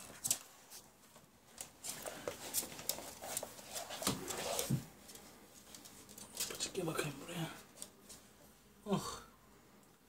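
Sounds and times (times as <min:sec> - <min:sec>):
puppy rustling among bags: 0:00.0 - 0:07.1.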